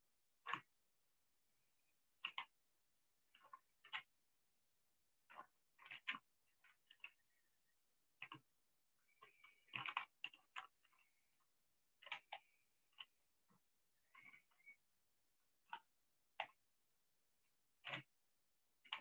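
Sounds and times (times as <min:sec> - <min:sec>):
keyboard and mouse clicks: 0:02.2 - 0:02.6, 0:03.4 - 0:04.1, 0:05.3 - 0:07.4, 0:08.2 - 0:08.5, 0:09.1 - 0:11.3, 0:12.0 - 0:14.8, 0:15.6 - 0:16.6, 0:17.8 - 0:18.2.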